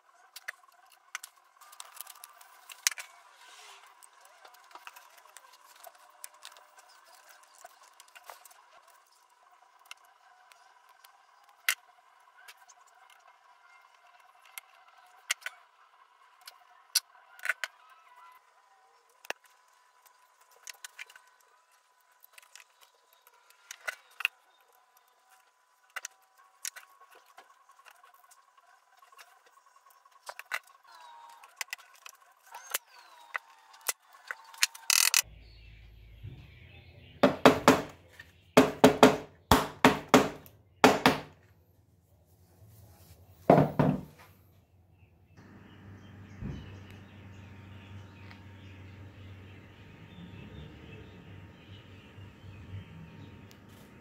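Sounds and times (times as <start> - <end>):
low hum: 45.4 - 54.0.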